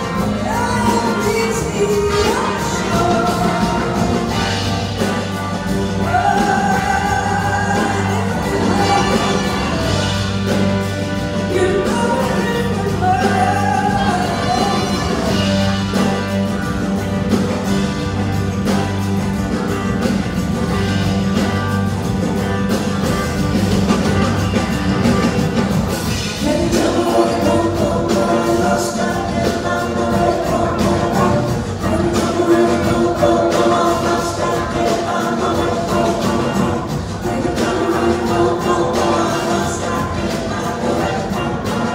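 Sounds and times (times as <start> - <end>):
woman singing lead vocal: 0.0 - 5.2, 5.8 - 10.0, 11.5 - 15.6, 26.4 - 41.9
backing singers harmonizing: 0.0 - 16.2, 26.2 - 41.9
live rock band: 0.0 - 41.9.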